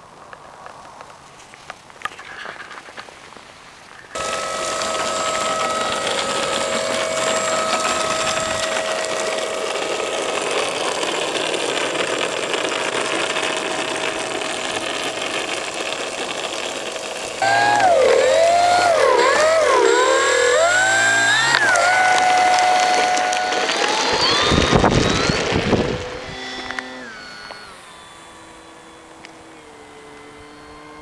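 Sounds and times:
model plane electric motor whine: 4.1 - 31.0.

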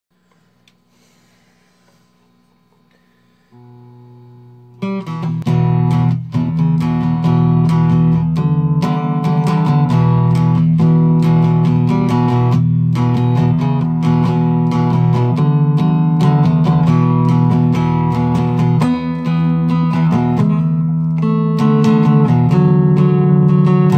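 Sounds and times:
faint steady hum: 0.1 - 5.4
electric guitar chords strummed: 3.5 - 23.9.

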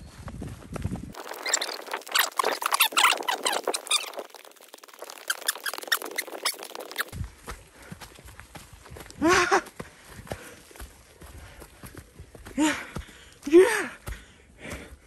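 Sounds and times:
running footsteps on dirt trail: 0.0 - 15.0
short high squeaks and chirps: 1.2 - 7.1.

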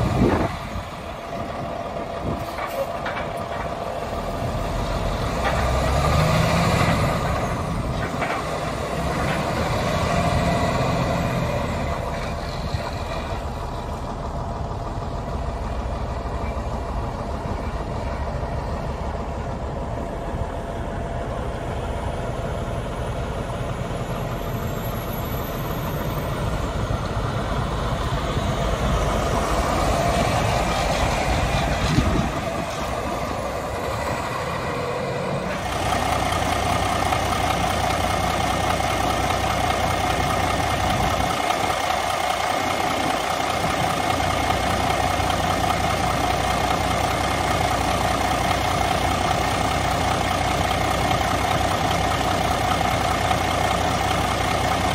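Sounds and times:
diesel engine idling: 0.0 - 54.9
distant diesel truck moving: 0.0 - 54.9.

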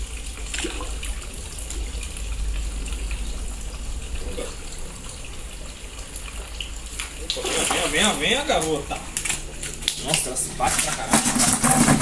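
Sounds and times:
low rumble: 0.0 - 7.4
water splashing and bubbling: 0.0 - 12.0.

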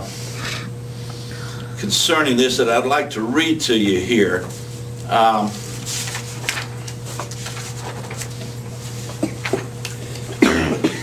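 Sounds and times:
person coughing: 9.2 - 9.6, 10.2 - 11.0.

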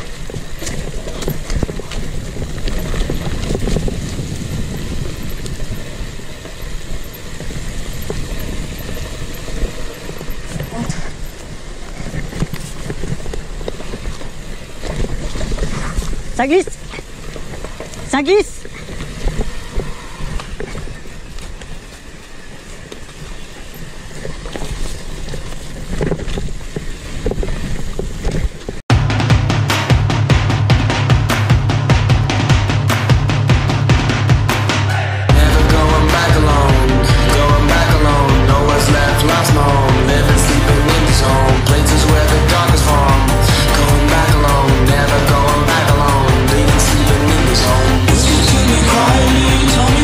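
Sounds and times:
bike tyres rolling over dirt: 0.0 - 28.9, 34.9 - 50.0
bike knocking and rattling: 0.0 - 50.0
drum-heavy music: 28.9 - 50.0.

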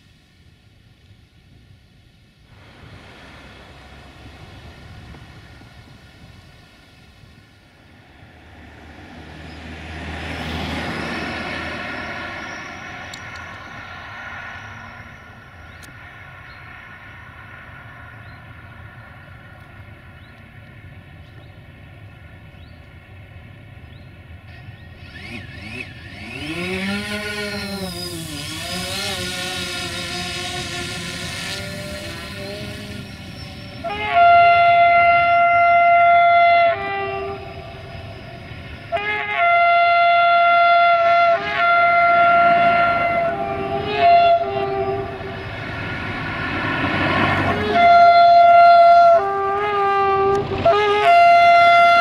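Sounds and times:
diesel locomotive drone: 0.0 - 52.0
road vehicle passing: 2.5 - 52.0
loud pitch-bending tone: 25.0 - 45.8.

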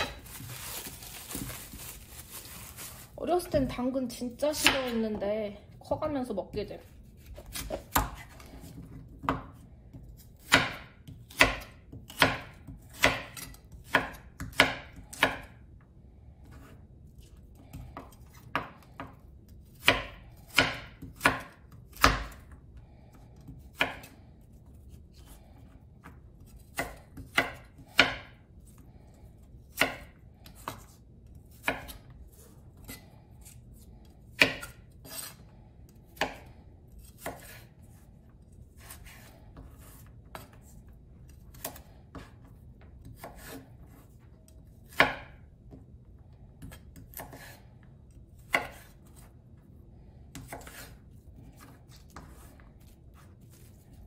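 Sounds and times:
knife slicing carrot on board: 7.0 - 15.6, 17.3 - 22.5, 23.4 - 24.2, 26.0 - 28.4, 29.7 - 33.6, 34.4 - 35.4, 36.1 - 38.0, 38.8 - 44.2, 44.8 - 45.4, 46.6 - 47.6, 48.4 - 49.3, 50.3 - 53.8.

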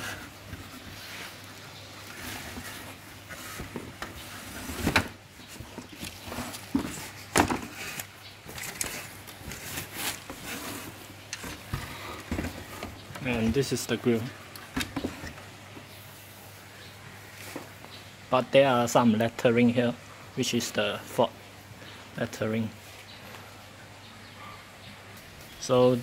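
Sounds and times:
fabric and cardboard rustling: 0.0 - 18.0.

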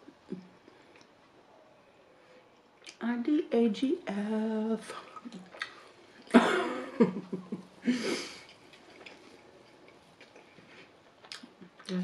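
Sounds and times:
woman coughing: 6.3 - 7.0.

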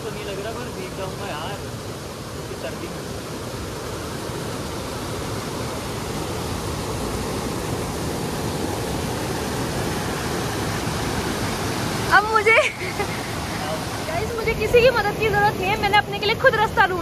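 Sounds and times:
waterfall and stream rushing: 0.0 - 17.0.

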